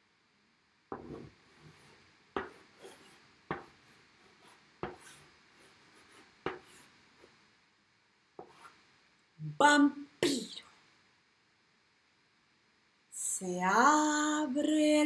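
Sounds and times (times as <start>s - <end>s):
chalk scraping on blackboard: 0.9s - 7.4s, 8.4s - 8.8s
chalk tapping on blackboard: 0.9s - 7.4s, 8.4s - 8.8s.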